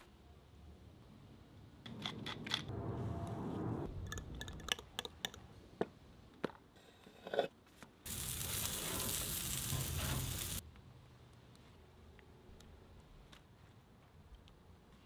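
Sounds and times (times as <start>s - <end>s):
patties sizzling on grill: 8.0s - 10.6s.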